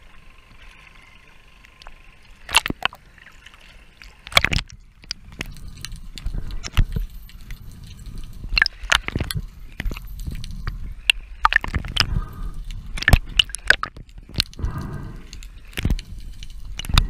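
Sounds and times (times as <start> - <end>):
low rumble of water: 0.0 - 17.0
underwater clicks and cracks: 1.6 - 17.0
bubbling gurgle: 8.4 - 10.0, 10.9 - 16.0.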